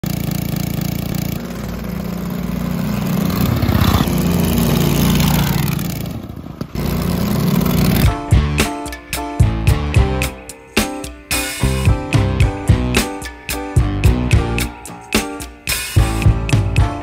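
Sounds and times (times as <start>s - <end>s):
small petrol engine revving: 0.0s - 8.2s
music with plucked notes and drums: 7.8s - 17.0s.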